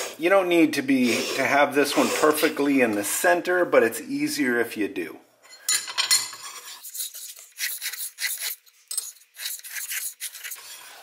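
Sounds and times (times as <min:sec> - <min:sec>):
steel scribe scratching metal: 0:06.2 - 0:11.0.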